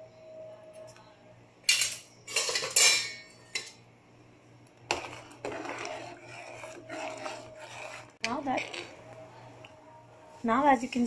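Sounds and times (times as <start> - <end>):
spoon scraping pot stirring soup: 4.8 - 9.2.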